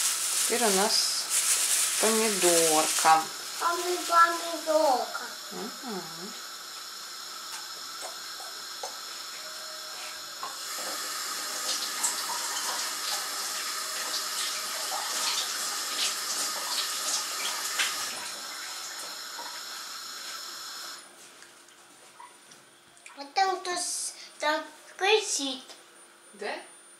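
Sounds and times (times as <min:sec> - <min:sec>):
kitchen tap running: 0:00.0 - 0:05.5, 0:06.7 - 0:09.4, 0:10.4 - 0:21.0
water splashing in sink: 0:10.7 - 0:19.7.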